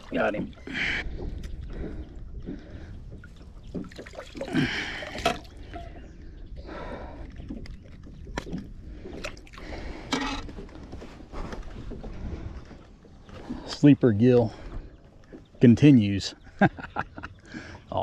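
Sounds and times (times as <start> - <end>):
water splashing and dripping: 0.0 - 5.9.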